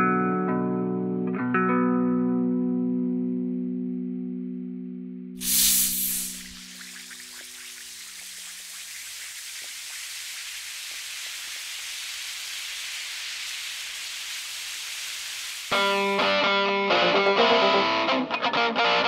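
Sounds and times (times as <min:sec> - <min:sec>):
high-pitched rushing hiss: 0:05.4 - 0:16.6.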